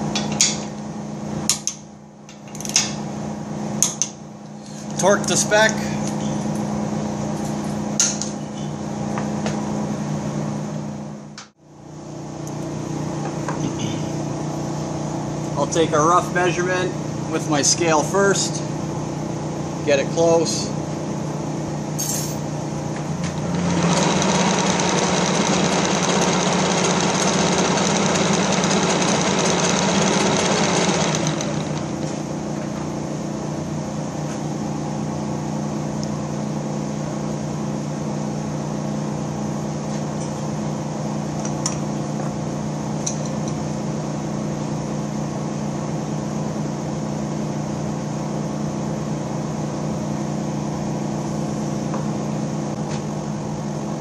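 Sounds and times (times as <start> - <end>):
machine motor hum: 22.8 - 34.0
rough mechanical whirr: 23.2 - 32.2.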